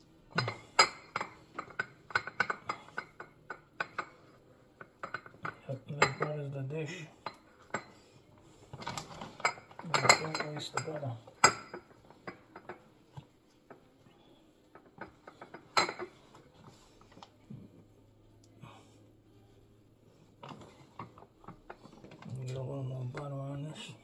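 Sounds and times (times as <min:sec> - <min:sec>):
dishes clinking and knocking: 0:00.3 - 0:06.4, 0:08.7 - 0:12.9, 0:14.7 - 0:17.2.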